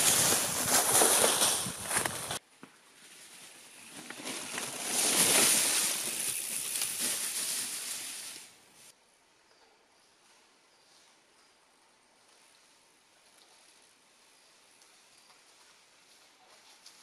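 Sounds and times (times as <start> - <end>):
bike tyres crunching through leaves: 0.0 - 8.9.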